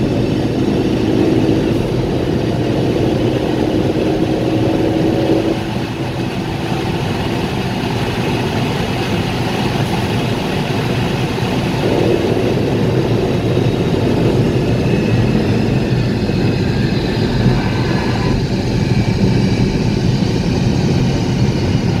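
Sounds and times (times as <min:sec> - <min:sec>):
car interior road noise: 0:00.0 - 0:20.2.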